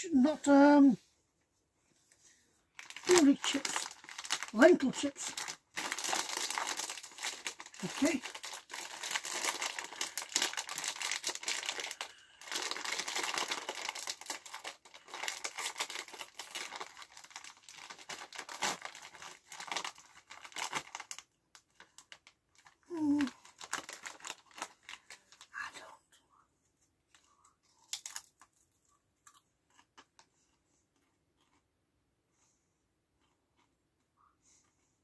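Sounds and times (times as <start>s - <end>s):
plastic crisp packet crinkling: 2.7s - 25.7s, 27.8s - 30.4s.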